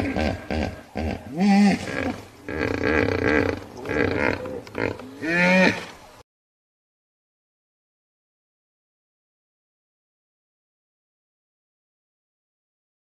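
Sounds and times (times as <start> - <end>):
hippopotamus honking grunts: 0.0 - 5.9.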